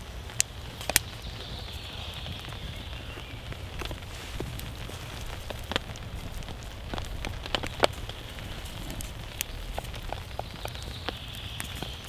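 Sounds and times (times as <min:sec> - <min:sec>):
raindrops tapping sharply: 0:00.0 - 0:12.0
steady rain: 0:00.0 - 0:12.0.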